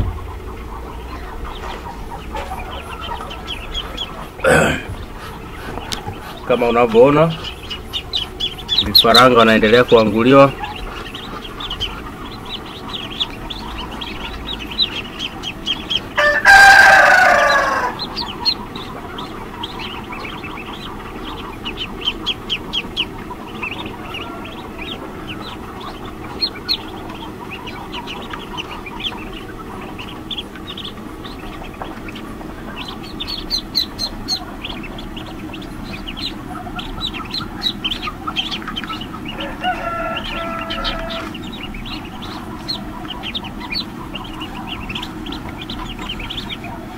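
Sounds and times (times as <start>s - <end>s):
ducklings peeping: 0.0s - 46.9s
rooster crowing: 15.6s - 18.6s, 23.6s - 27.2s, 39.2s - 45.0s.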